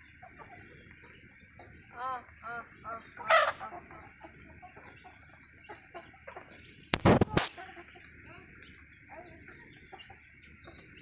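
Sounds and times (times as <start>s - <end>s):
chickens clucking: 0.0s - 11.0s
chicken squawk: 2.0s - 4.3s.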